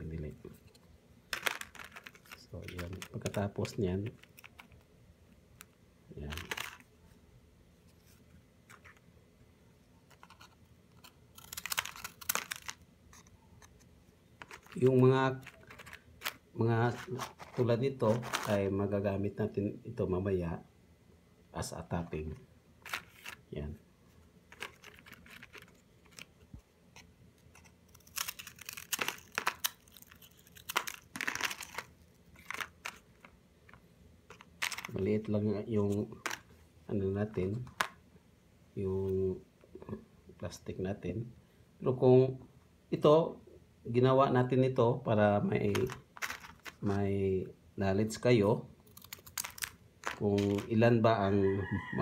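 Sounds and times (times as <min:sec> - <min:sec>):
crackers crunching against plastic: 0:11.0 - 0:12.8, 0:14.4 - 0:18.6, 0:27.5 - 0:33.3, 0:45.7 - 0:46.9, 0:48.9 - 0:50.7
plastic wrapping crinkling: 0:14.4 - 0:18.6, 0:24.5 - 0:26.4, 0:27.5 - 0:33.3.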